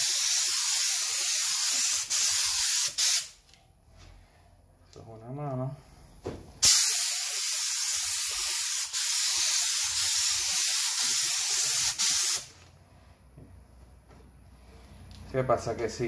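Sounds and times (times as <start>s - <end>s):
paint spray gun hissing: 0.0s - 3.4s, 6.6s - 12.6s.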